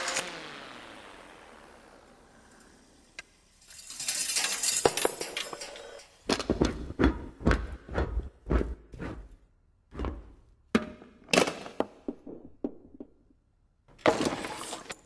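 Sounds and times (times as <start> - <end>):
metal parts clattering on wood: 3.6 - 6.6.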